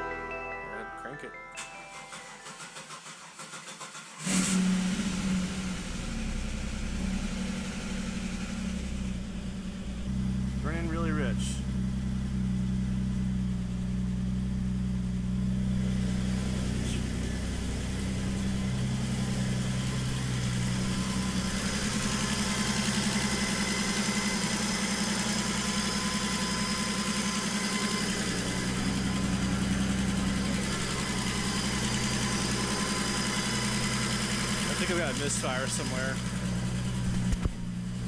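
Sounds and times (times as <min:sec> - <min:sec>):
car engine idling with misfire: 0:01.6 - 0:38.0
engine hiss: 0:02.0 - 0:07.0.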